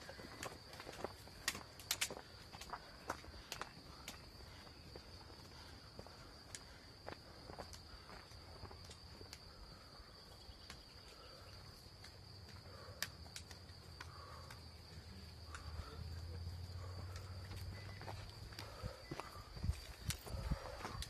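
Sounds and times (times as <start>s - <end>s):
footsteps on trail: 0.0s - 21.0s
insects chirring: 0.0s - 21.0s.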